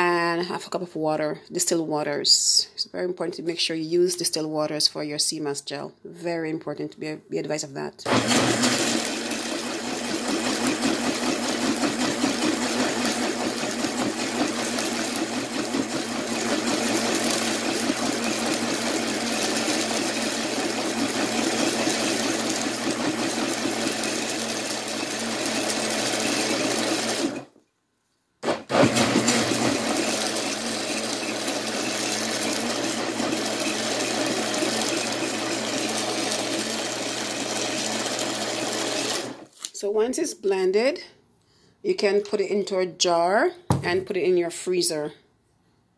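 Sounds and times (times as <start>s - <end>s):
blender running: 8.1s - 27.5s, 28.4s - 39.5s.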